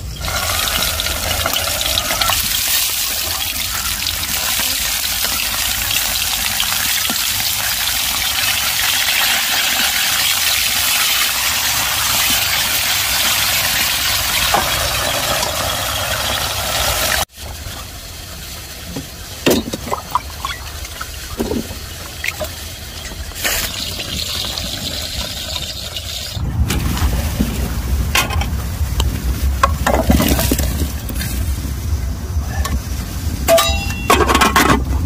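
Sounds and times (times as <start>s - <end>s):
stove fire rumble: 0.0s - 35.0s
metal pot lid clinks: 33.5s - 34.3s.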